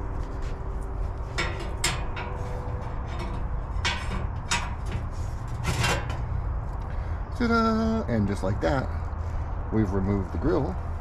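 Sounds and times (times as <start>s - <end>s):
metal tool scraping metal grate: 1.2s - 6.4s.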